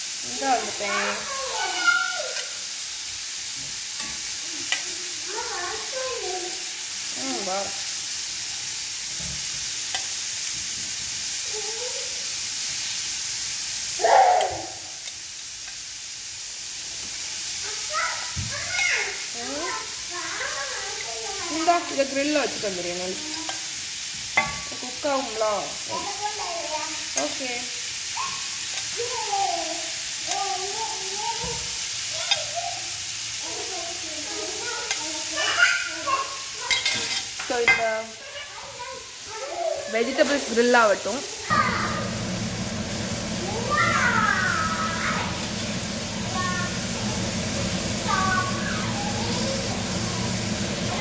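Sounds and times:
food sizzling in grill pan: 0:00.0 - 0:51.0
high voice: 0:48.0 - 0:50.3.

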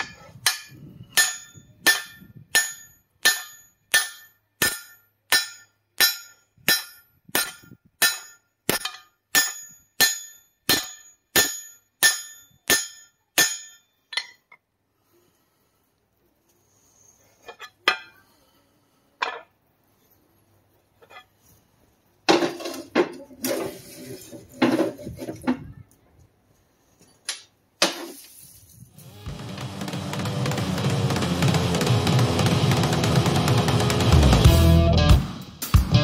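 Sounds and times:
hammer striking steel on anvil: 0:00.0 - 0:14.4.

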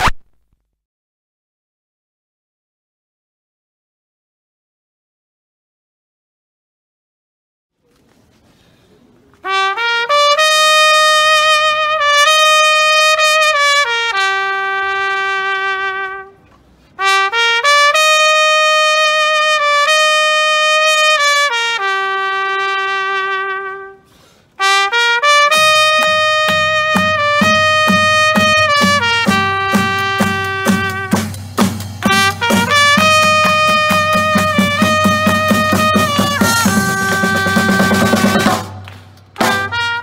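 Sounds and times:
trumpet playing slow melody: 0:09.4 - 0:38.8, 0:39.4 - 0:40.0
low drum beat: 0:25.6 - 0:39.8.

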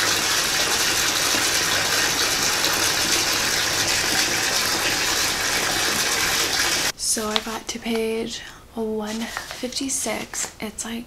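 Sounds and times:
water pouring into bathtub: 0:00.0 - 0:06.9.

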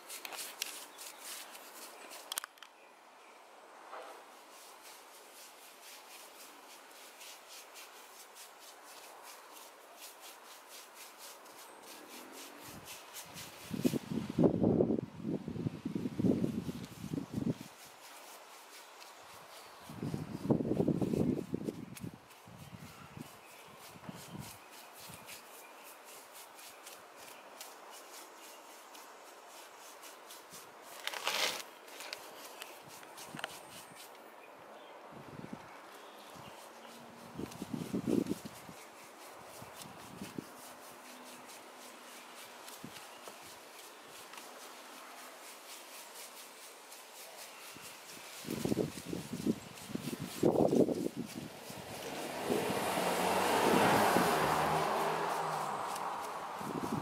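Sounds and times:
brush scraping on cement: 0:00.0 - 0:02.5, 0:04.1 - 0:14.5, 0:16.0 - 0:34.4, 0:35.9 - 0:57.0
hand tool scraping cement: 0:04.6 - 0:14.0, 0:30.0 - 0:34.1.

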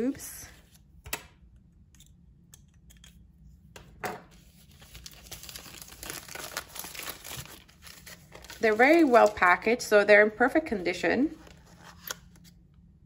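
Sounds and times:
plastic film crinkling and tearing: 0:04.6 - 0:09.7.

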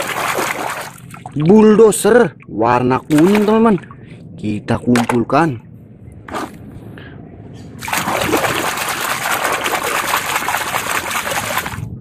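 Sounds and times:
water splashing and trickling: 0:00.0 - 0:04.2, 0:07.8 - 0:12.0.

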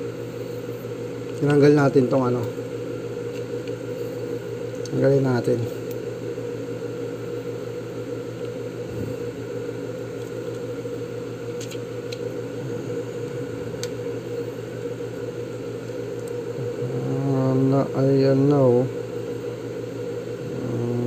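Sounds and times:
low mechanical hum: 0:00.0 - 0:21.0.

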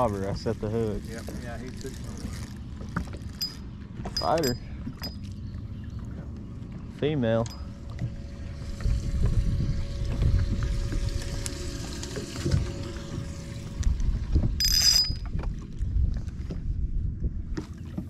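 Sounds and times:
faint steady hum: 0:00.0 - 0:18.0
wind rumble on microphone: 0:07.8 - 0:18.0.

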